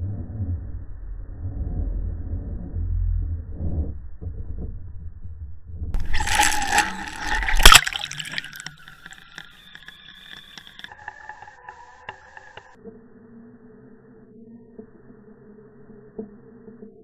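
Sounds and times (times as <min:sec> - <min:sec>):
camera splashing into water: 0:06.0 - 0:09.4
small underwater clicks: 0:06.0 - 0:12.6.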